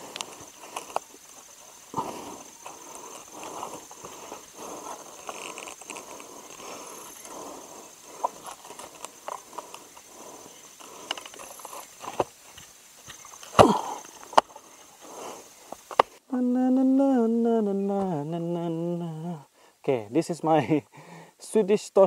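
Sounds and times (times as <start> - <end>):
string scraping on bark: 0.0 - 16.0.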